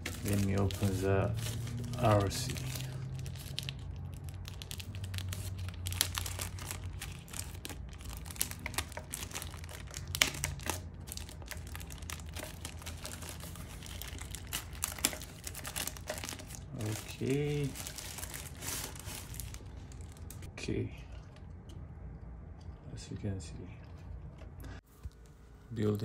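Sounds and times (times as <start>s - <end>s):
plastic wrapping crinkling: 0.0s - 20.5s.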